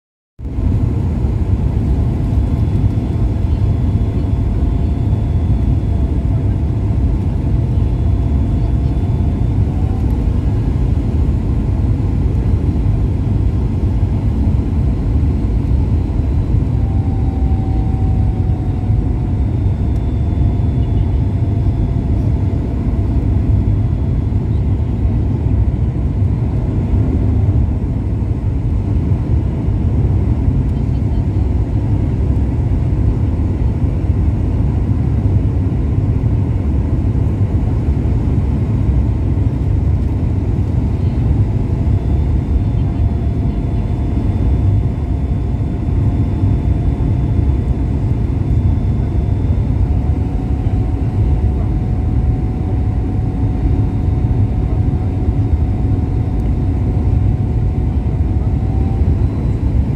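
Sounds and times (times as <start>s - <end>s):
jet engine and airflow rumble: 0.4s - 59.9s
faint whine drifting in pitch: 15.6s - 24.4s.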